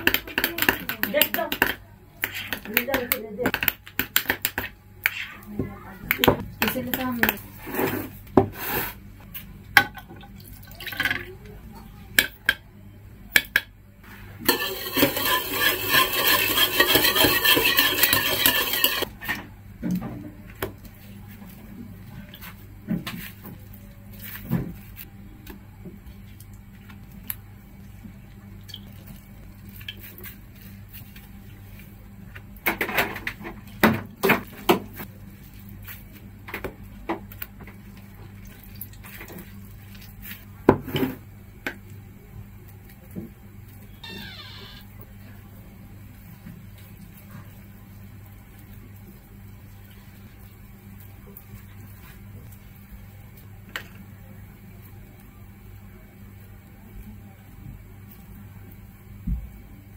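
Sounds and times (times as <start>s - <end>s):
spoon and bowls clinking: 14.5s - 19.1s.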